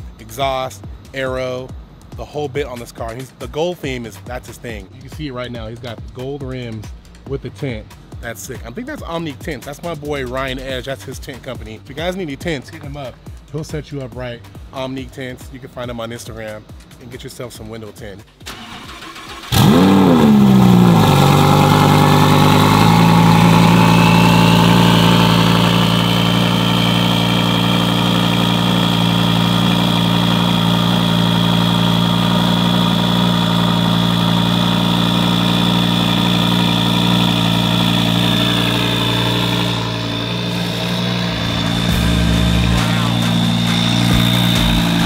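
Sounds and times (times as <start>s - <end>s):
sports car engine idling: 18.3s - 45.0s
high thin whine: 36.0s - 45.0s.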